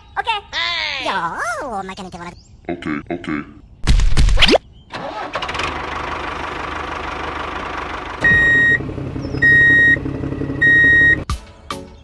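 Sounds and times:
toy tractor engine: 5.0s - 11.2s
reversing beeps: 8.2s - 8.8s, 9.4s - 10.0s, 10.6s - 11.2s.

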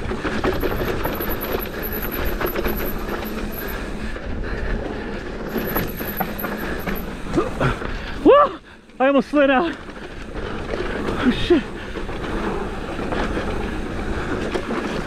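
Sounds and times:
bike rattling over bumps: 0.0s - 8.3s, 8.9s - 15.0s
bike tyres rolling over dirt: 0.0s - 15.0s
fast high ticking: 0.4s - 4.1s, 5.5s - 7.4s.

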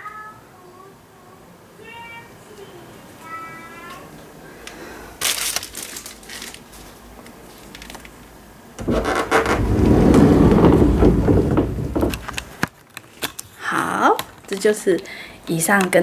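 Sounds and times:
sliding door rumbling on track: 8.8s - 12.5s.

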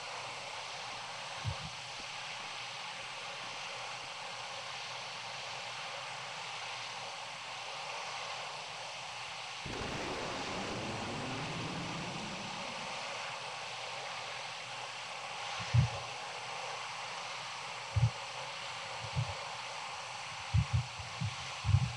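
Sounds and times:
wind noise hiss: 9.7s - 13.7s
low rumble: 9.7s - 14.1s.

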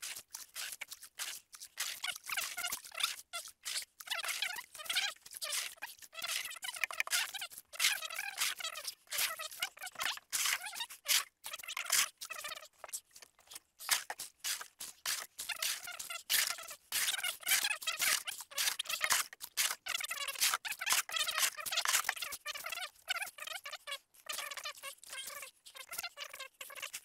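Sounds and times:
plastic scoop scraping hull: 0.0s - 22.2s.

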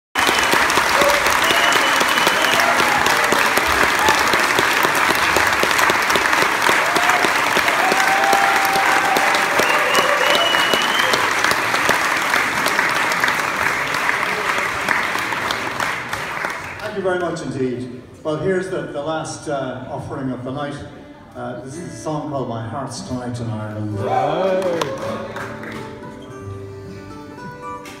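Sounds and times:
audience clapping: 0.1s - 17.4s, 24.4s - 26.3s
people cheering: 0.2s - 16.2s, 24.0s - 25.9s.

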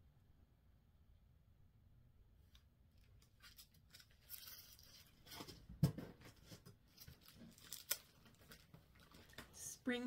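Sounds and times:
paper and plastic rustling: 3.1s - 9.6s.

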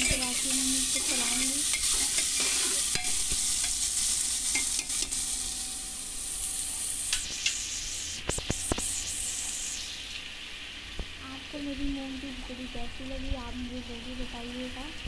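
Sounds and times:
metal spoon scraping a pot: 0.0s - 3.8s
onions sizzling in hot oil: 0.0s - 15.0s.

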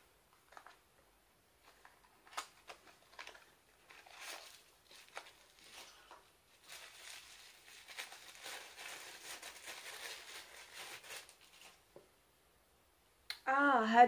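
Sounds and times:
tissue paper crinkling: 1.6s - 11.9s.

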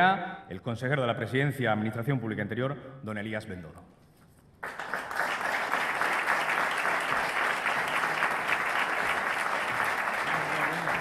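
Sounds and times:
audience applauding: 4.6s - 11.0s.

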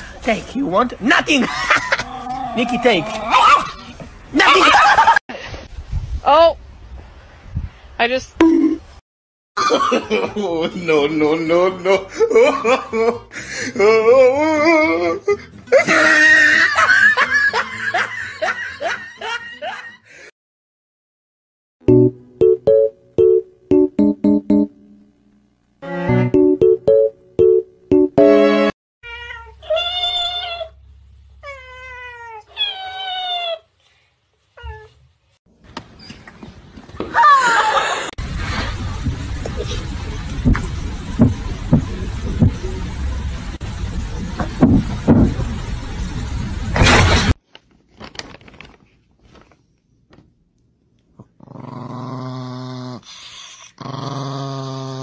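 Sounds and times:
small dog growling: 51.2s - 55.0s.

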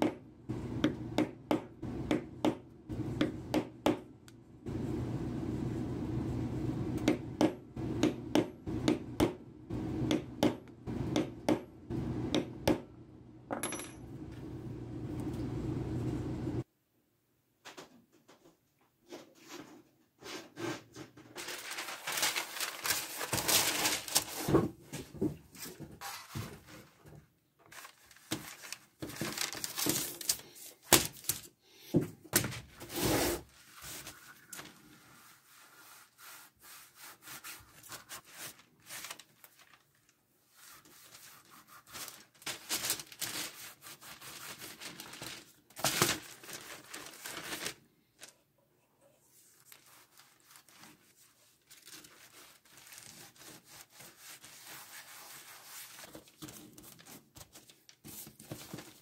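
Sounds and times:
leather and paper rustling: 21.4s - 24.5s, 27.7s - 31.4s, 41.9s - 48.3s, 49.6s - 53.8s.

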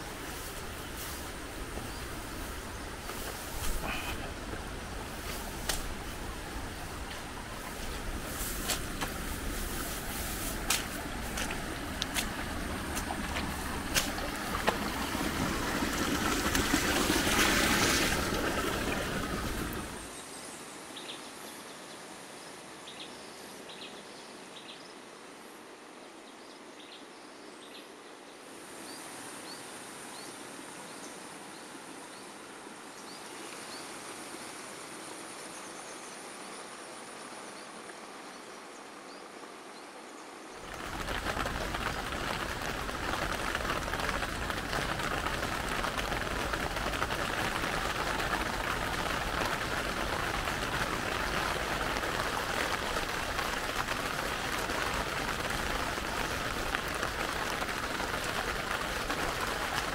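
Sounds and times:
steady high hiss: 0.0s - 27.2s
rushing noise with clicks: 3.0s - 6.1s, 7.0s - 20.1s, 40.6s - 59.9s.

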